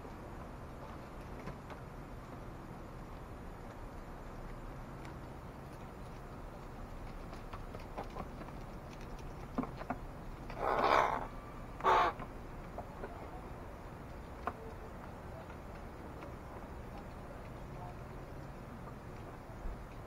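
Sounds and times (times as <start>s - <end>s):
crow cawing: 10.6s - 12.2s.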